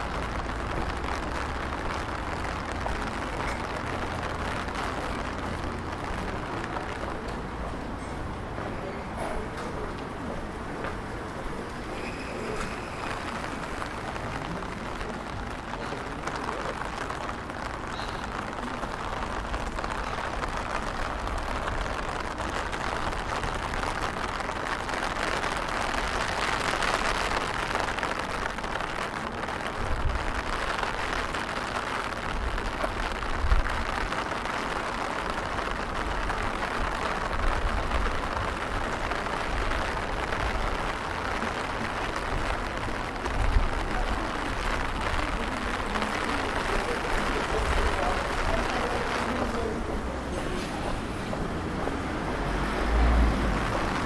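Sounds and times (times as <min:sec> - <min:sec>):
rain falling on stone and river: 0:00.0 - 0:54.0.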